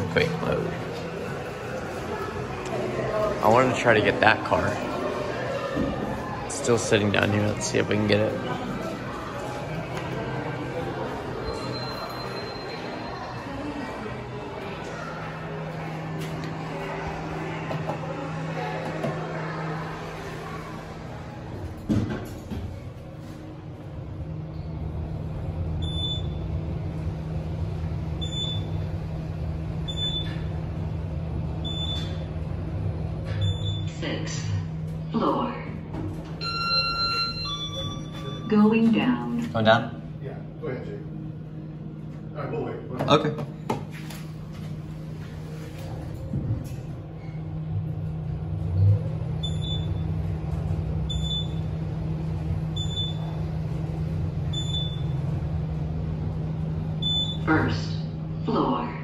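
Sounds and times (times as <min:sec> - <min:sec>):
elevator travel hum: 0:00.0 - 0:59.0.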